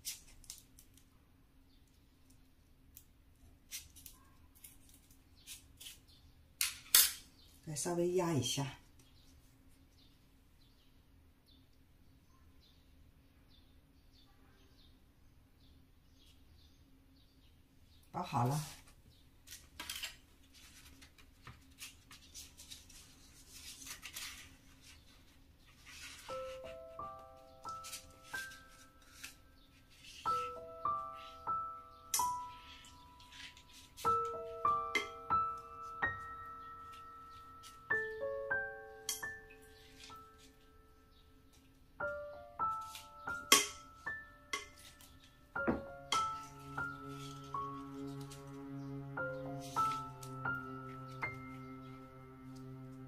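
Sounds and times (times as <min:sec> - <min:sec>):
leaves rustling: 0:19.5 - 0:31.5, 0:39.6 - 0:40.6.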